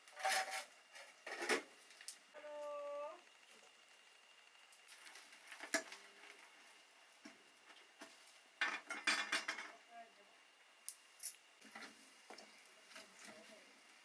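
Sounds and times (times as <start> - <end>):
ladle clinking against pots: 8.6 - 9.7.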